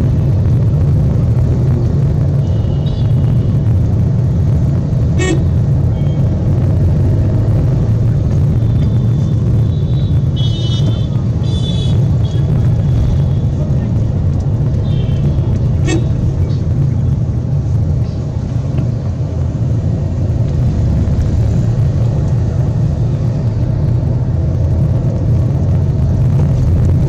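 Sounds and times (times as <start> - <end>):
vehicle driving rumble from inside: 0.0 - 27.0
car horns tooting: 5.2 - 5.5, 8.8 - 12.5, 14.8 - 16.2.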